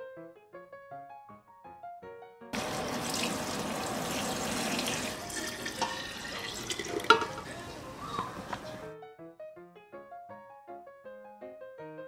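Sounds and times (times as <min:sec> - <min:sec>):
liquid pouring into glass jar: 0:02.6 - 0:07.8.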